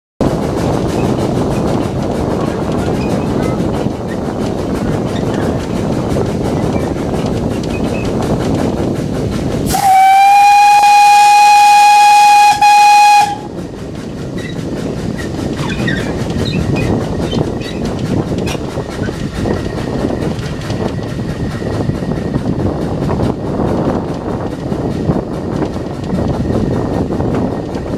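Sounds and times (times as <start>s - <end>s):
locomotive running: 0.2s - 27.9s
wind noise on microphone: 0.2s - 27.9s
steam locomotive whistle: 9.7s - 13.5s.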